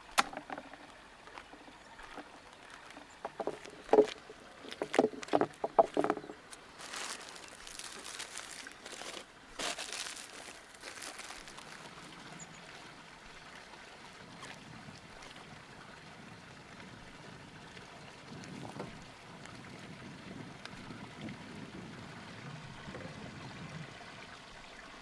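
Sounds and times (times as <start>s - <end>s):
liquid sloshing and splashing: 0.0s - 16.1s.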